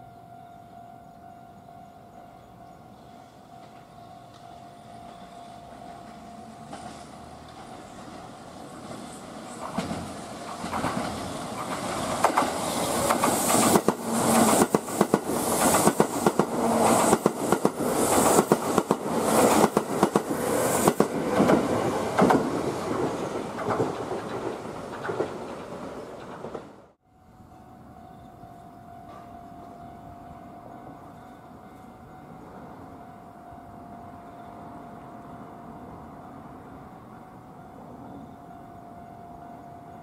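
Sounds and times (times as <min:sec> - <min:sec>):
train rumble: 0:00.7 - 0:40.0
rushing hiss: 0:08.4 - 0:19.6.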